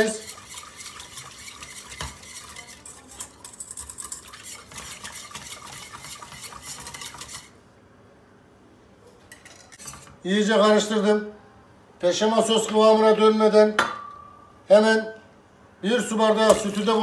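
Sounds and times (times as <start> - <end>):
whisk scraping metal pot: 0.0 - 7.6.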